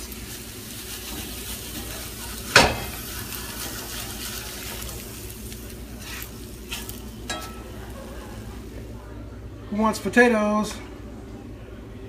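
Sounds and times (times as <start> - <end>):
potato chunks tumbling into skillet: 0.0 - 8.9
sharp knock on pan: 2.6 - 2.9.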